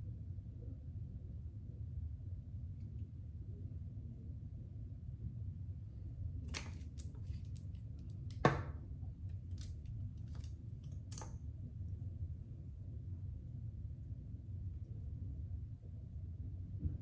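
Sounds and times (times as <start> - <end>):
low room hum: 0.0 - 17.0
makeup items clicking and tapping: 6.5 - 8.7, 9.5 - 11.4.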